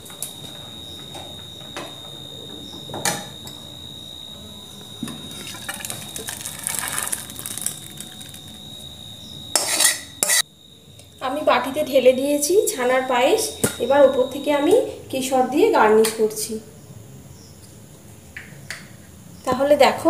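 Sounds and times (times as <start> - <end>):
spoon scraping steel pan: 9.6 - 10.4.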